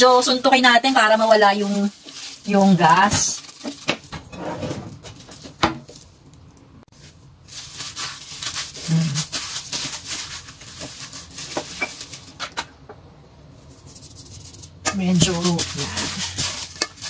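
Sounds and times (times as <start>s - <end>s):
plastic glove rustle: 0.0s - 4.3s, 4.9s - 6.2s, 6.9s - 12.4s, 13.5s - 17.0s
hand squishing dough: 13.7s - 17.0s.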